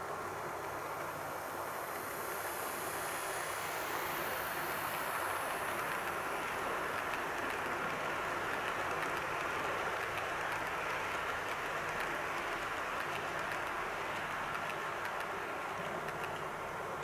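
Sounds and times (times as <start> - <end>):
model train wheels rattling on rail: 0.4 - 17.0.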